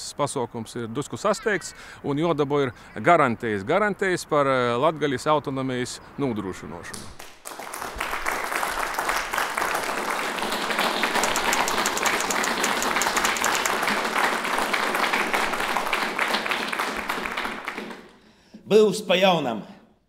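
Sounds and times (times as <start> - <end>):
audience applauding: 7.2 - 18.2.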